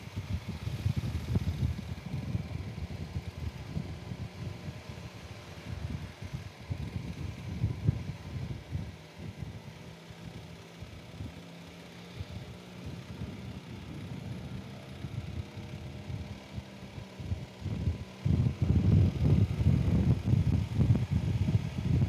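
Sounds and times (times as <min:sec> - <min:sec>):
motorcycle engine running slowly: 0:00.0 - 0:22.0.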